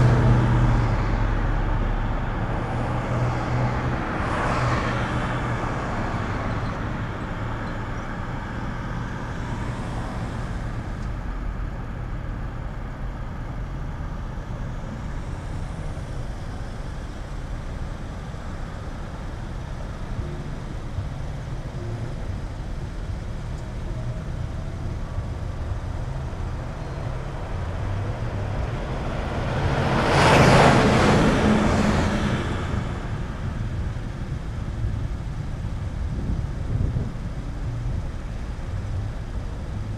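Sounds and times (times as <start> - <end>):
engines idling in traffic: 0.0 - 39.9
vehicle passing close: 24.0 - 34.1.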